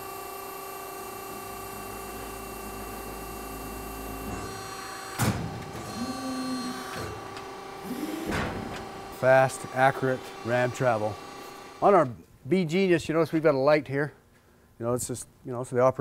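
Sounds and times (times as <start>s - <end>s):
press brake machine whining hum: 0.0s - 12.2s
sharp machine clunk: 4.3s - 9.6s.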